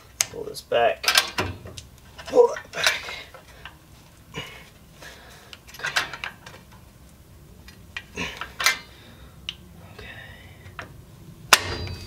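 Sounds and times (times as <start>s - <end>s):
hand tool clinking on brake parts: 7.7s - 9.0s, 11.5s - 12.0s.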